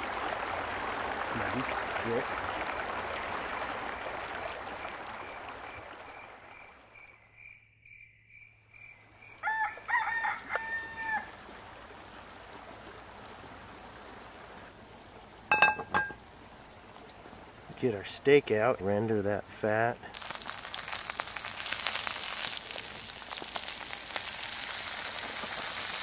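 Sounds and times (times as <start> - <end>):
rooster crowing: 9.4 - 11.3.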